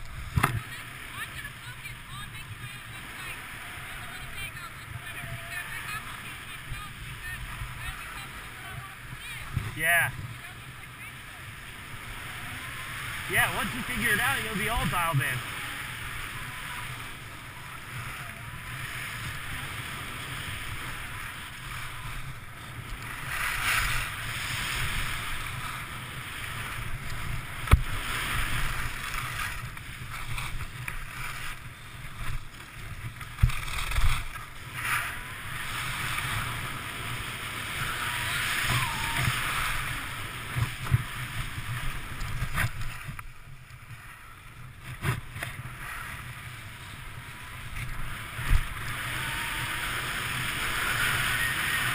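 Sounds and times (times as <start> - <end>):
skis scraping over snow: 0.0 - 51.9
wind rumble on microphone: 15.3 - 51.9.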